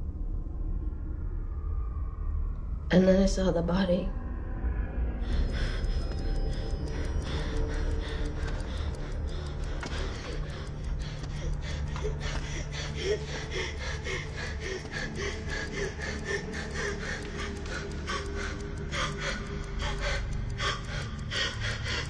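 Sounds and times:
low drone: 0:00.0 - 0:22.0
woman gasping: 0:09.7 - 0:22.0.

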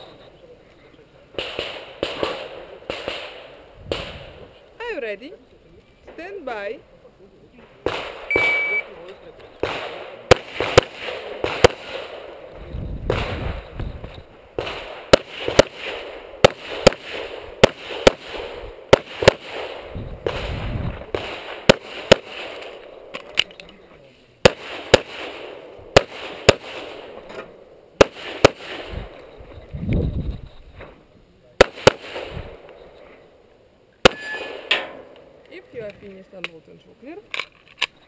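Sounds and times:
pistol gunshots: 0:01.3 - 0:04.6, 0:07.8 - 0:23.5, 0:24.4 - 0:29.2, 0:31.6 - 0:32.8, 0:34.0 - 0:35.4.

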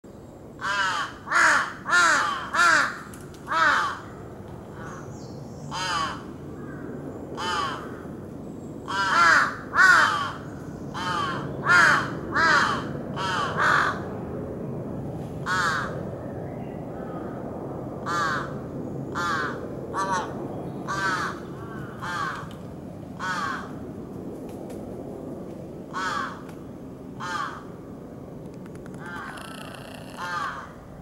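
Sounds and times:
crows cawing: 0:00.6 - 0:05.0, 0:05.7 - 0:08.2, 0:08.9 - 0:10.4, 0:11.0 - 0:14.0, 0:15.5 - 0:15.9, 0:18.0 - 0:18.6, 0:19.2 - 0:22.5, 0:23.2 - 0:23.8, 0:25.9 - 0:26.5, 0:27.2 - 0:27.7, 0:28.9 - 0:30.8.

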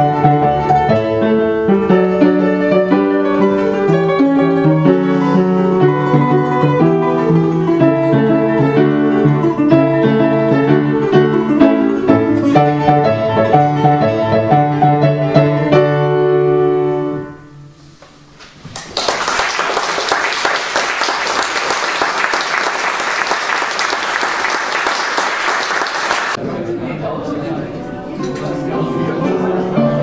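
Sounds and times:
classical guitar: 0:00.0 - 0:17.9, 0:27.3 - 0:30.0
piano: 0:00.0 - 0:30.0
audience applause: 0:18.7 - 0:26.4.

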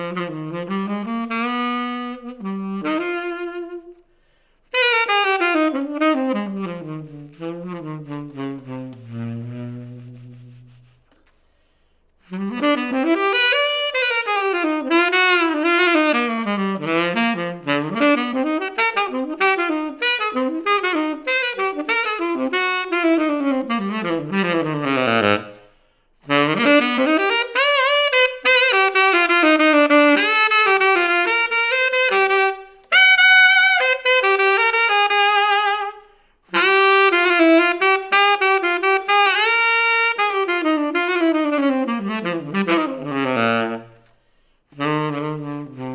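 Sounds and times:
tenor saxophone jazz runs: 0:00.0 - 0:11.2, 0:12.2 - 0:45.9.

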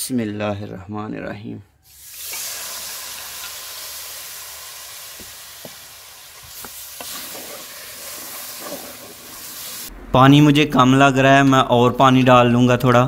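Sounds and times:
water sizzling in hot fat: 0:01.9 - 0:09.9.

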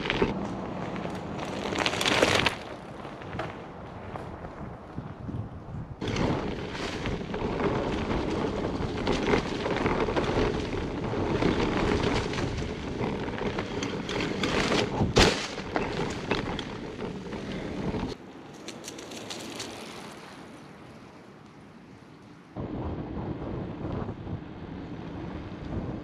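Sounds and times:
wind noise: 0:00.0 - 0:18.2, 0:22.6 - 0:26.0
bike tyres rumbling on dirt: 0:00.0 - 0:20.6
bike frame rattle: 0:06.0 - 0:18.2.

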